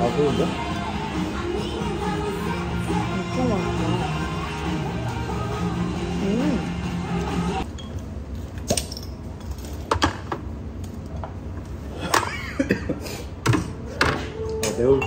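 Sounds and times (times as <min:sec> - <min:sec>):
background music: 0:00.0 - 0:07.6.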